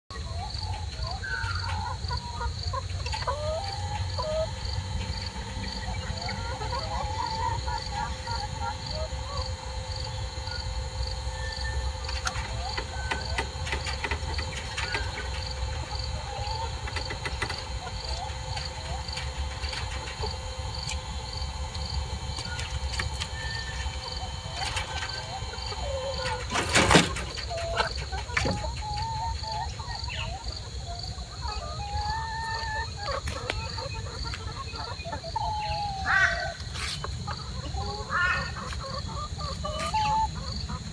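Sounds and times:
high insect trill: 0.1s - 40.8s
hens clucking: 0.1s - 40.9s
small motor whining: 3.1s - 28.8s.

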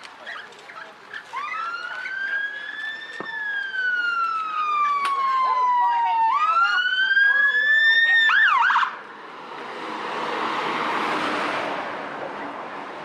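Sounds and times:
fire engine siren: 1.3s - 9.1s
engine and tyre noise passing: 8.4s - 13.0s.

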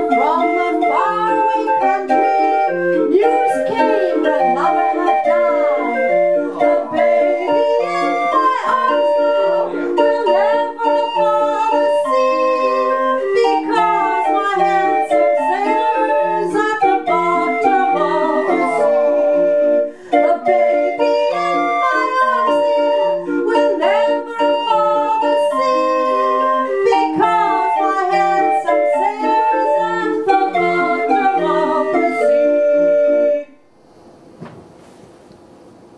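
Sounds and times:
hand-cranked street organ playing: 0.0s - 33.6s.

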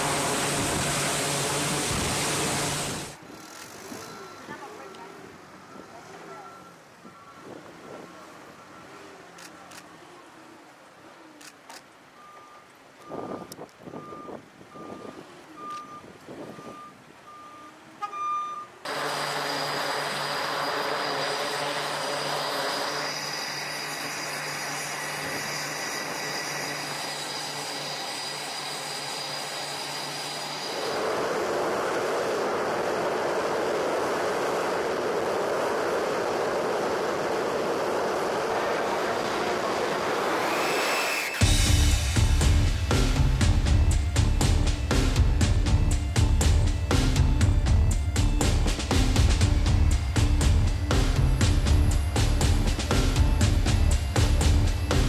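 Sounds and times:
jet engine rush: 0.0s - 3.2s, 29.9s - 47.5s
helicopter turbine engines starting: 0.0s - 7.0s, 18.9s - 55.0s
short repeated beeps: 12.2s - 18.8s.

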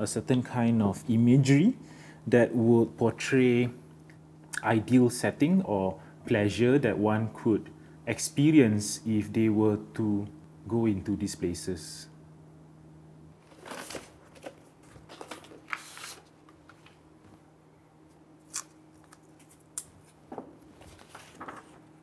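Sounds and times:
paper rustling: 13.4s - 17.0s, 18.5s - 22.0s
masking tape tearing: 18.4s - 20.2s.

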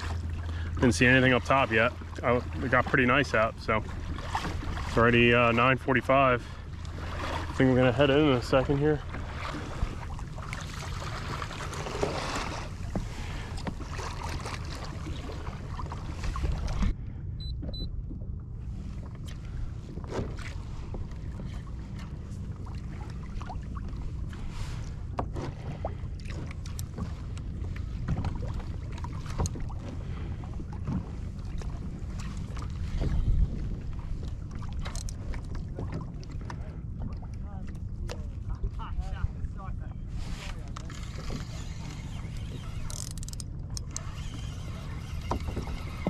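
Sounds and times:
water lapping against hull: 0.0s - 46.0s
wind on microphone: 29.4s - 37.3s.

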